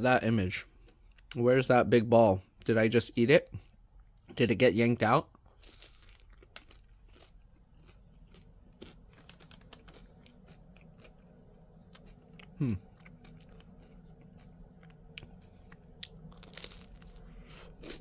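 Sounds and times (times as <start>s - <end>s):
close-up chewing with crunches: 5.4s - 18.0s
person humming hmm: 12.5s - 12.9s.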